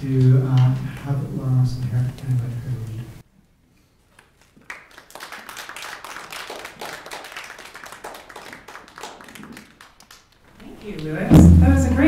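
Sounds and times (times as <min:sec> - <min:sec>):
audience applauding: 0:04.1 - 0:11.3.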